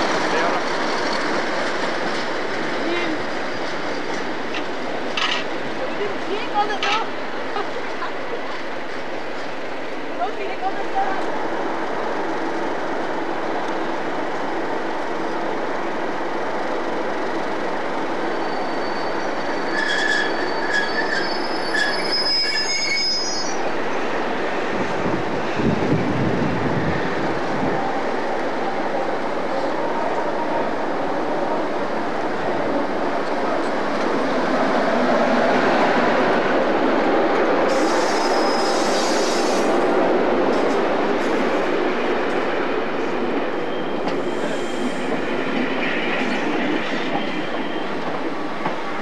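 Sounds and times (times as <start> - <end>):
rumble of rail noise: 0.0 - 49.0
train rolling past: 0.0 - 49.0
train wheels squealing: 3.3 - 4.2, 18.1 - 24.1, 37.7 - 39.6, 43.6 - 49.0
high hiss with faint squeal: 37.7 - 39.7.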